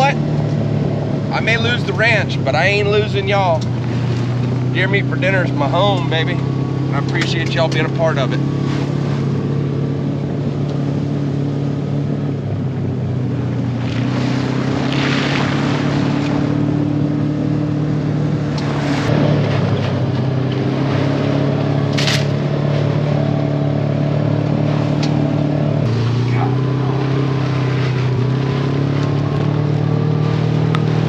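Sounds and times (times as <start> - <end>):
vehicle engine running: 0.0 - 31.0.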